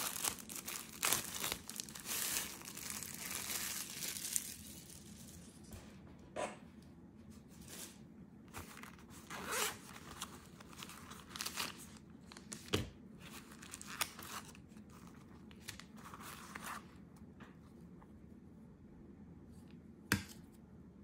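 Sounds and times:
plastic wrapping crinkling: 0.0 - 5.6, 7.6 - 12.7
zipper rasping: 9.3 - 9.8.

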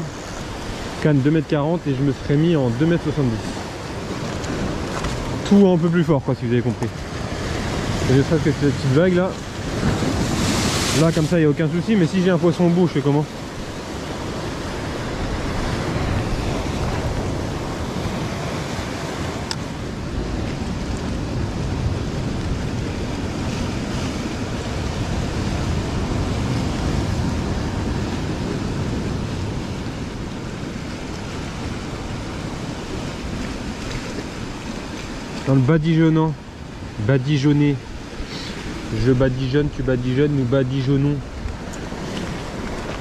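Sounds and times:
wind buffeting microphone: 0.0 - 35.5
surf breaking over rocks: 0.0 - 43.0.

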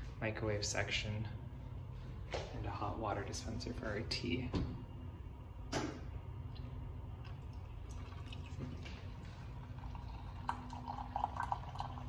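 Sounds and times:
low steady hum: 0.0 - 12.0
hot water pouring into mug: 7.2 - 12.0.

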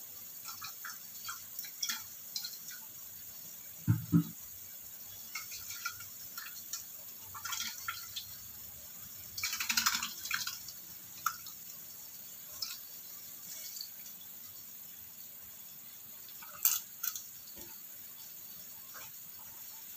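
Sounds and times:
faint hiss: 0.0 - 19.9
sauce bubbling and popping: 0.4 - 4.6.

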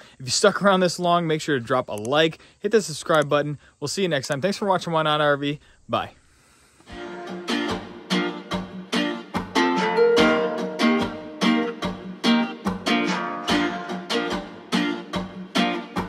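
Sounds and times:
strummed acoustic string instrument: 6.9 - 16.0.

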